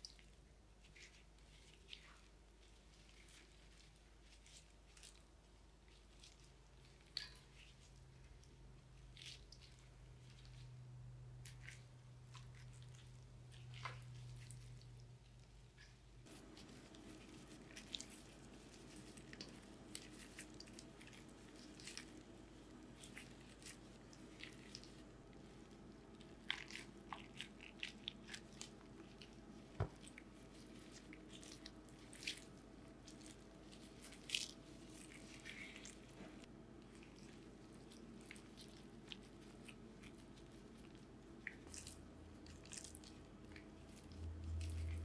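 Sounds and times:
person chewing crunchy radish: 9.1 - 45.0.

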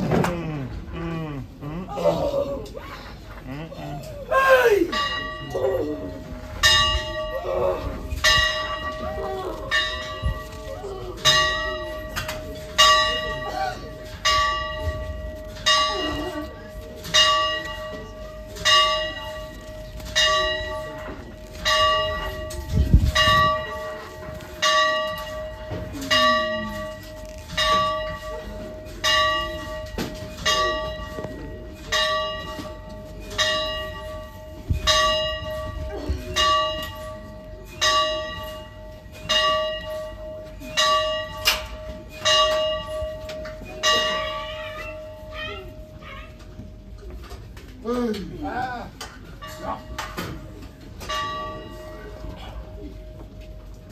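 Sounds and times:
faint crowd voices: 0.0 - 53.9
church bell tolling: 4.6 - 47.0, 48.8 - 53.9.

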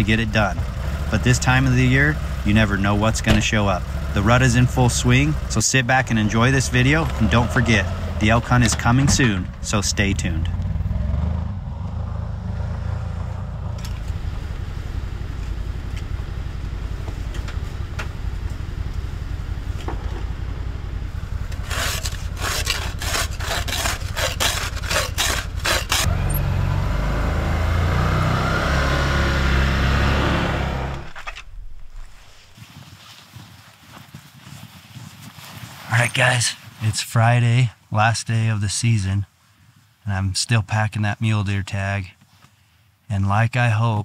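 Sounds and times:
vehicle engine running: 0.0 - 32.6.

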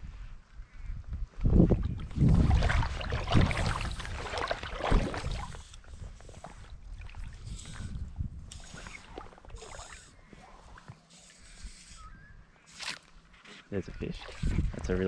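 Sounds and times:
water sloshing around wading legs: 1.7 - 11.1.

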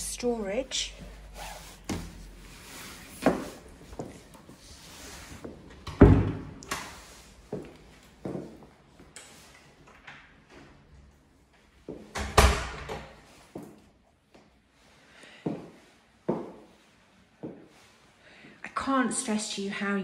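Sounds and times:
footsteps on tiled floor: 0.7 - 5.8, 6.8 - 9.1, 15.4 - 16.8.

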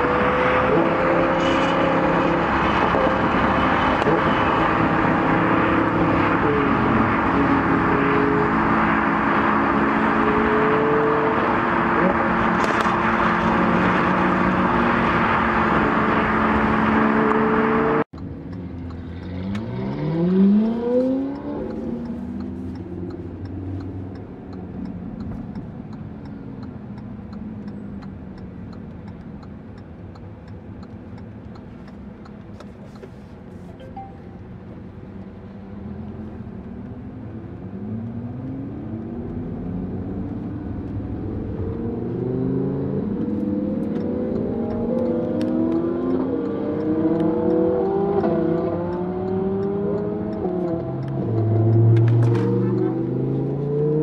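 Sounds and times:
sports car engine revving: 0.0 - 28.6, 37.7 - 54.0
car engine drone from inside: 0.0 - 54.0.

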